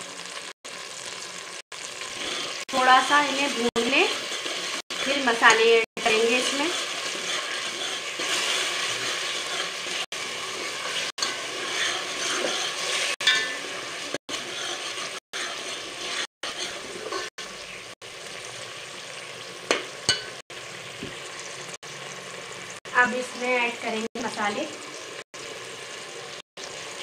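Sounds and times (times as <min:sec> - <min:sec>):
tomato puree sizzling in oil: 0:00.0 - 0:27.0
steel ladle scraping pot: 0:02.0 - 0:02.6, 0:03.3 - 0:17.3.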